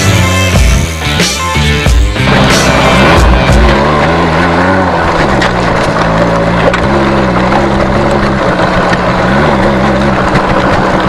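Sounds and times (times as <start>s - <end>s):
motorcycle engine idling: 1.9s - 11.0s.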